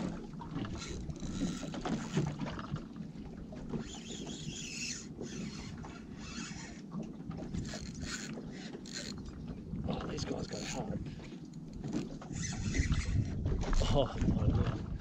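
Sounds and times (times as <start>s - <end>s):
water noise: 0.0s - 15.0s
wind: 0.0s - 15.0s
fishing reel cranking: 0.6s - 2.4s, 3.8s - 6.8s, 7.5s - 9.3s, 10.2s - 10.9s, 11.5s - 13.4s.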